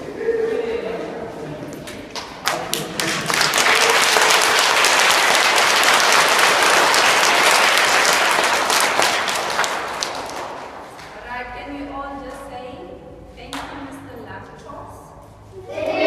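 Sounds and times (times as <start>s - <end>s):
children applauding: 2.4s - 10.7s.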